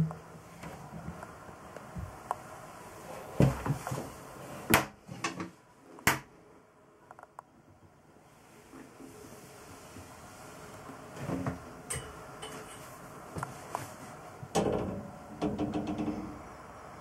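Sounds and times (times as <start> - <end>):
wooden doors knocking and clunking: 14.6 - 16.4.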